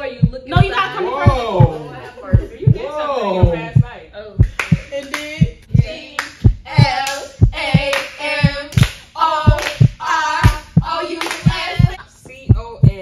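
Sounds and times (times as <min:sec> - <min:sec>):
voices chanting: 0:00.0 - 0:04.0, 0:04.7 - 0:12.0
low thumping beat: 0:00.0 - 0:13.0
hand claps: 0:04.4 - 0:05.4, 0:07.8 - 0:10.6, 0:11.2 - 0:11.7.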